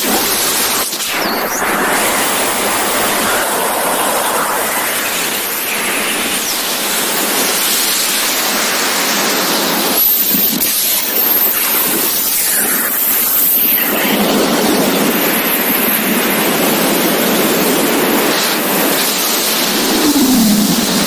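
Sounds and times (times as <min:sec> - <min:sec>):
wind rushing over microphone: 0:13.9 - 0:21.0.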